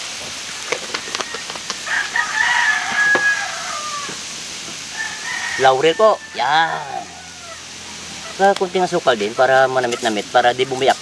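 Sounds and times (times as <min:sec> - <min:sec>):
rooster crowing: 0:01.0 - 0:08.4.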